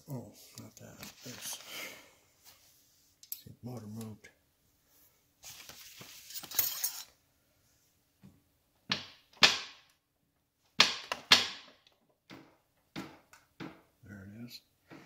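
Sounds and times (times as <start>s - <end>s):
tool scrape: 6.0s - 7.1s.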